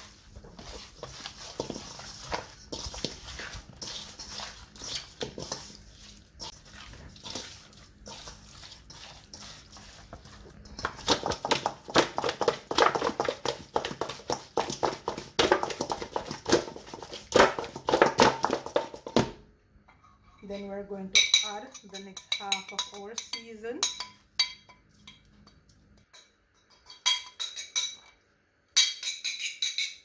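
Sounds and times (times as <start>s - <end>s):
hands squelching raw chicken: 0.0s - 12.4s
meat bumping metal bowl: 10.2s - 19.3s.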